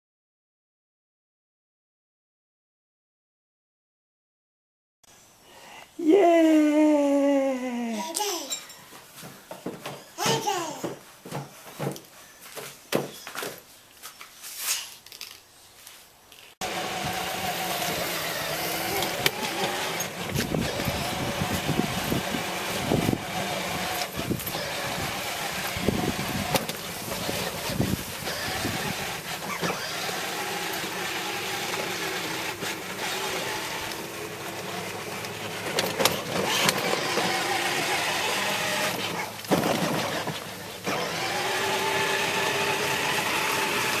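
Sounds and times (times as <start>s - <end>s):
electric motor whine: 16.6s - 44.0s
plastic wheels rumbling: 16.6s - 44.0s.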